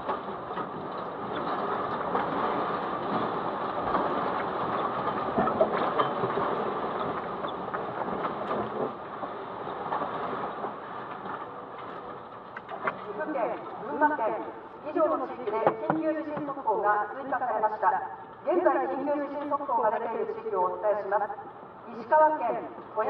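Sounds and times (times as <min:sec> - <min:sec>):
car rattling from earthquake: 0:00.0 - 0:13.1.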